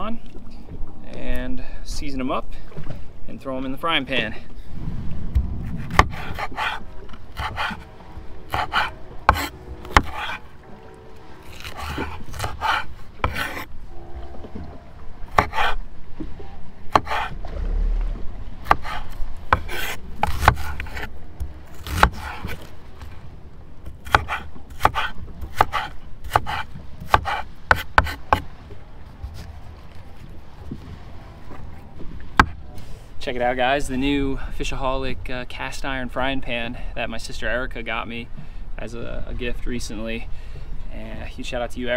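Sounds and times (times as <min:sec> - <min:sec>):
rubbing and scraping: 0:04.9 - 0:23.3.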